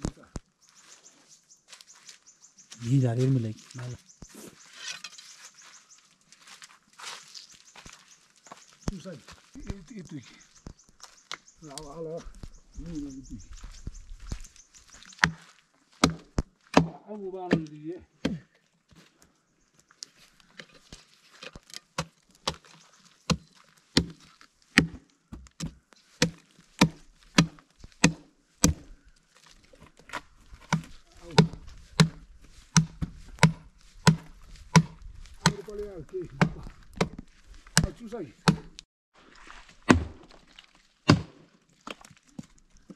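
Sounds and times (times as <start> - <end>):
knife chopping into wood: 15.2 - 15.4, 16.0 - 18.5, 23.3 - 28.9, 30.6 - 35.7, 36.4 - 37.2, 37.8 - 38.8, 39.8 - 40.4, 41.1 - 41.4.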